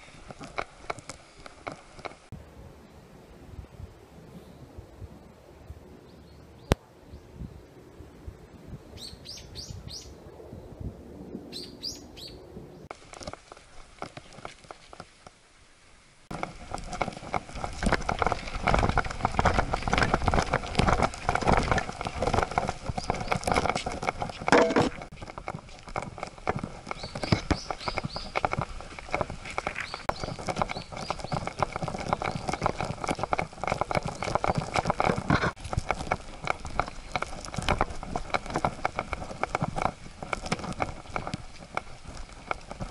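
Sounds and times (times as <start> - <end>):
birds chirping: 8.8 - 10.8, 11.5 - 12.9, 26.8 - 28.4, 29.6 - 32.9
dog footsteps on forest trail: 12.9 - 15.5, 16.3 - 42.9.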